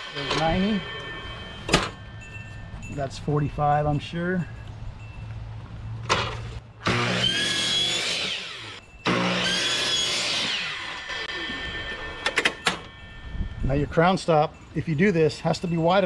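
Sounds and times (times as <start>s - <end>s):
miter saw cutting wood: 6.8s - 12.4s
saw blade spinning down: 6.8s - 12.4s.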